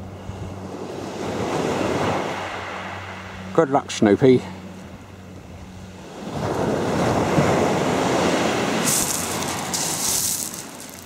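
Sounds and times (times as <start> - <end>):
small waves breaking on shingle: 8.3 - 11.0.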